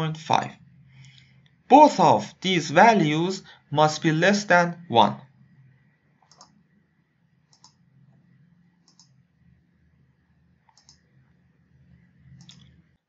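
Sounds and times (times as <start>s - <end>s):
faint low hum: 0.0s - 13.0s
faint computer mouse clicks: 6.2s - 6.6s, 7.5s - 7.8s, 8.8s - 9.2s, 10.7s - 11.1s, 12.3s - 12.8s.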